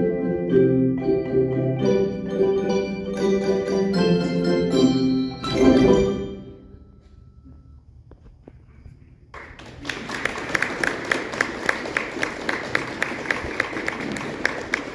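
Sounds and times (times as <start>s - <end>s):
audience applause: 9.3s - 14.9s.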